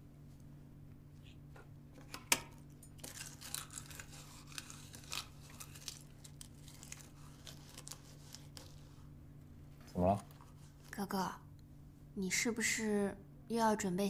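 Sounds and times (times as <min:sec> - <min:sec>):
low steady hum: 0:00.0 - 0:14.0
crackling and rustling: 0:02.9 - 0:09.1.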